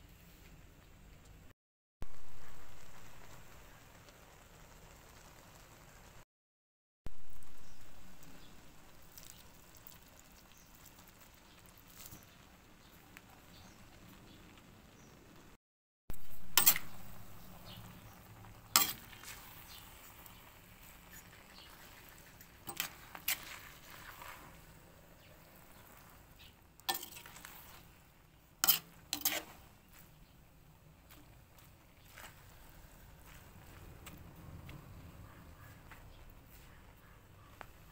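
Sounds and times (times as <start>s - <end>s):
frying hiss: 0.0s - 6.3s, 7.1s - 37.9s
spatula scraping wok: 16.1s - 30.2s.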